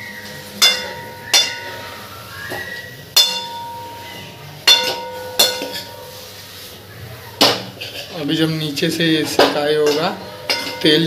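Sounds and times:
metal ladle clinking steel pan: 0:00.6 - 0:01.8, 0:03.1 - 0:06.1, 0:09.3 - 0:11.0.

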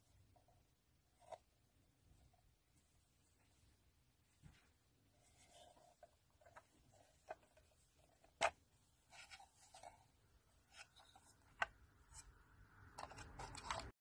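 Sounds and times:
soft rustling: 0:02.1 - 0:12.4.

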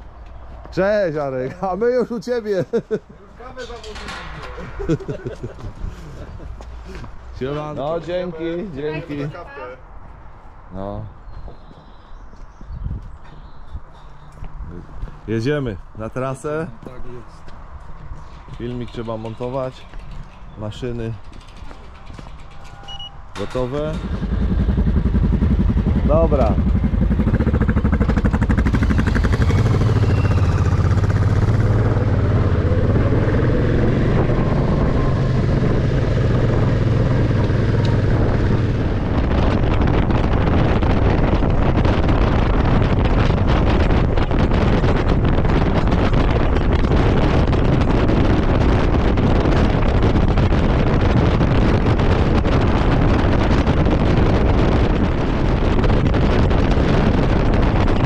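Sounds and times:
wind rushing over microphone: 0:00.0 - 0:58.0
motorcycle engine running: 0:23.9 - 0:58.0.

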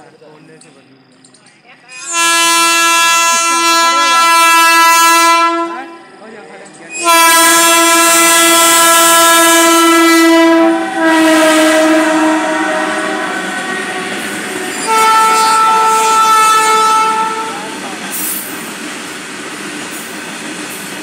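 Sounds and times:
locomotive horn blasts: 0:01.9 - 0:06.2, 0:06.9 - 0:18.4.

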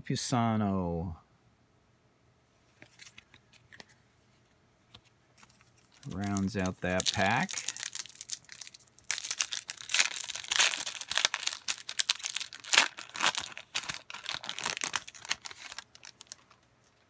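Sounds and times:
wrapper crackling and tearing: 0:05.5 - 0:17.0.

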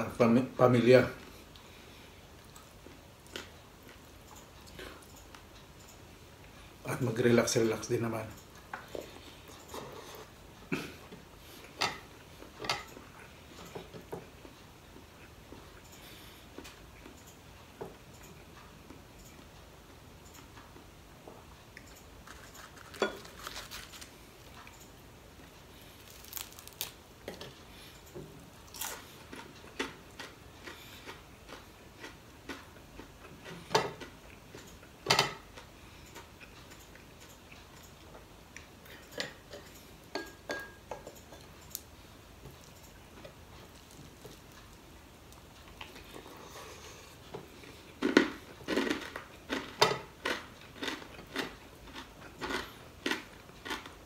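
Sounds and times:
chewing: 0:21.8 - 0:34.9, 0:41.0 - 0:54.0.

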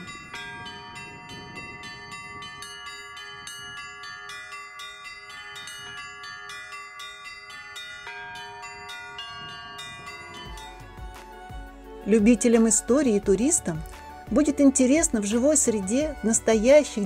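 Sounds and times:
church bells pealing: 0:00.0 - 0:11.1.

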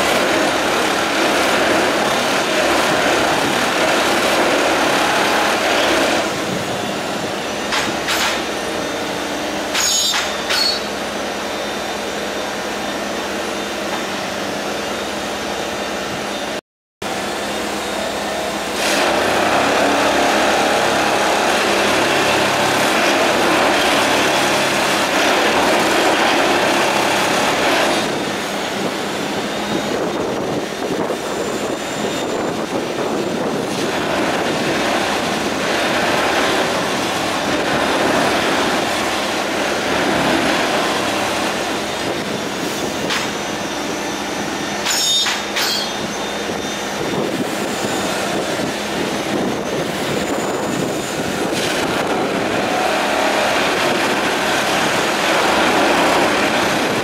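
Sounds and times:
sharp metallic clanks: 0:09.7 - 0:10.9, 0:44.8 - 0:46.1.

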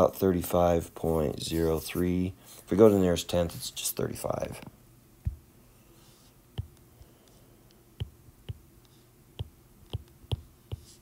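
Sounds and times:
stylus tapping on glass screen: 0:06.6 - 0:06.8.

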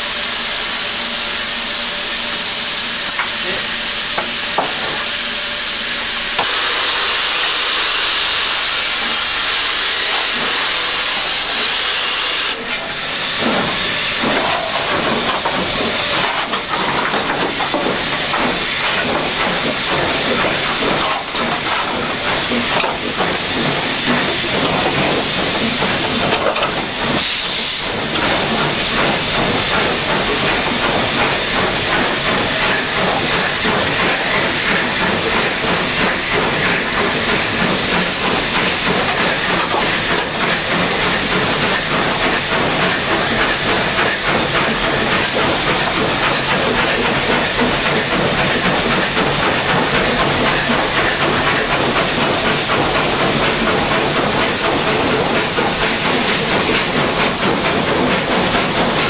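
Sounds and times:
loud steady steam hiss: 0:00.0 - 0:59.0
locomotive beating and rattling: 0:12.6 - 0:27.3, 0:27.9 - 0:59.0.

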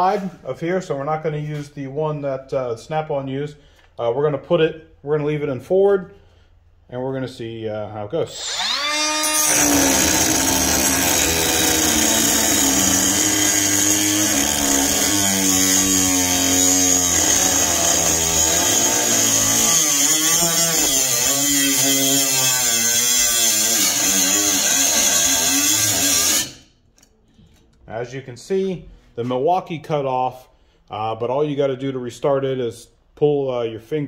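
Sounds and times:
cut-off tool grinding steel: 0:08.4 - 0:26.7.

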